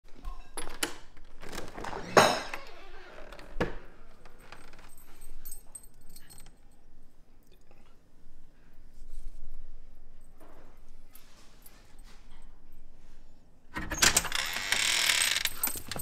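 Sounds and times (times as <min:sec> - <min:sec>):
light metallic jingling: 0:04.2 - 0:06.9, 0:15.5 - 0:16.0.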